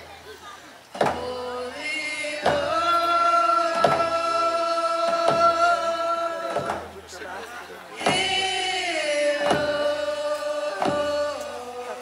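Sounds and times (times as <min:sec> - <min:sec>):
group of voices singing: 0:00.9 - 0:12.0
hand drums beating: 0:02.4 - 0:07.0, 0:08.0 - 0:08.6, 0:09.3 - 0:10.0, 0:10.7 - 0:11.4.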